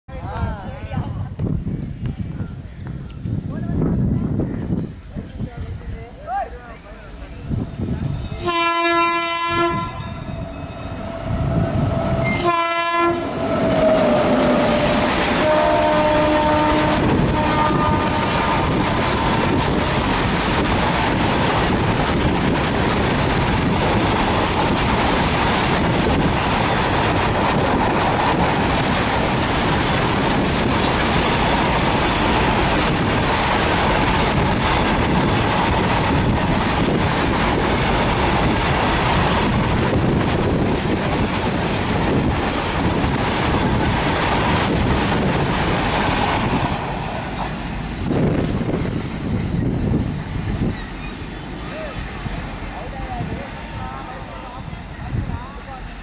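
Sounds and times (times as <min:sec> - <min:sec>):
freight train rumble and clatter: 0:00.1 - 0:56.0
locomotive horn blasts: 0:08.4 - 0:18.8.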